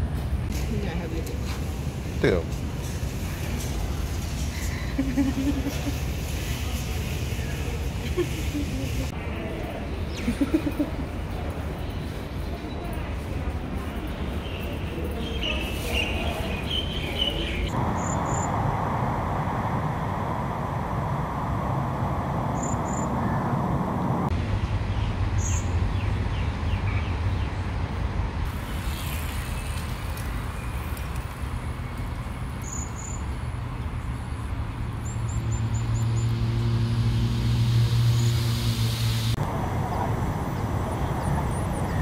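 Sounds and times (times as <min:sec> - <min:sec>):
traffic rumble: 0:00.0 - 0:42.0
engine hum: 0:17.7 - 0:25.4, 0:27.8 - 0:42.0.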